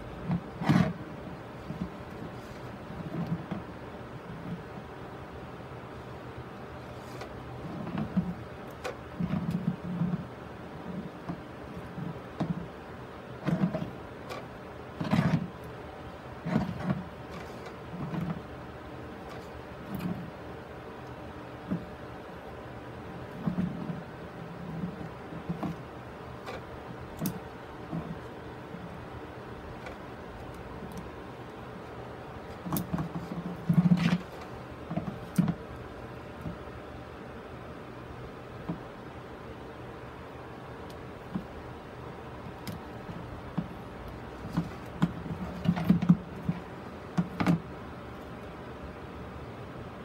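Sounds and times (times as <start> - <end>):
plastic board scraping on plastic lid: 0.2 - 1.0, 6.8 - 12.8, 13.4 - 15.6, 16.4 - 18.5, 23.3 - 28.3, 32.5 - 35.6, 42.5 - 47.7.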